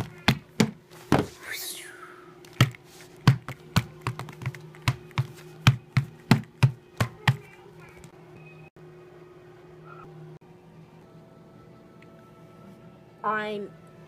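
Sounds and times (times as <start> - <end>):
doll's shoes tapping on hardwood floor: 0.0 - 1.3, 2.6 - 7.5.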